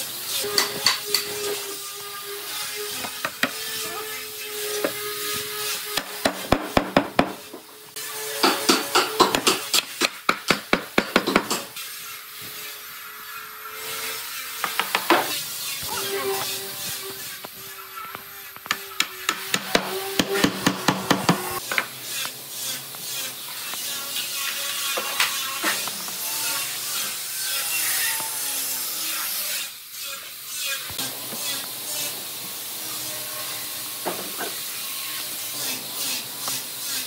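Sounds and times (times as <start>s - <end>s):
tool knocking on wood: 6.0s - 7.4s, 8.4s - 11.7s, 14.6s - 15.3s.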